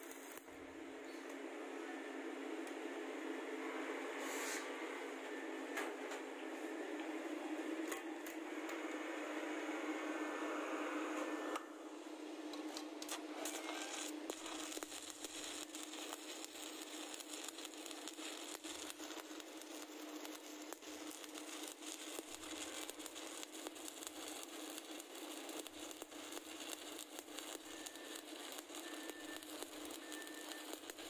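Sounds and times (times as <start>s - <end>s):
welding arc crackling: 0.0s - 0.6s, 12.6s - 31.0s
steady hum: 0.0s - 31.0s.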